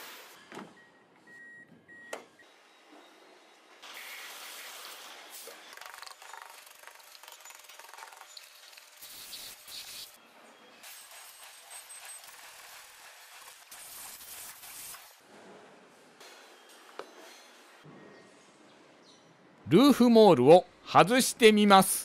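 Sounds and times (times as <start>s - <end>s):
water spray hissing: 9.0s - 10.2s
brush scrubbing car: 11.0s - 15.1s.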